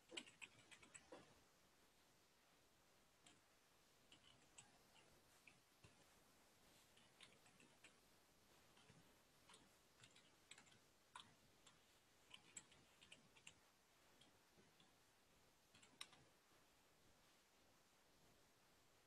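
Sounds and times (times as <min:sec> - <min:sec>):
computer keyboard typing: 0:00.0 - 0:01.2, 0:04.1 - 0:05.0, 0:07.0 - 0:08.0, 0:08.8 - 0:13.6, 0:15.7 - 0:16.2.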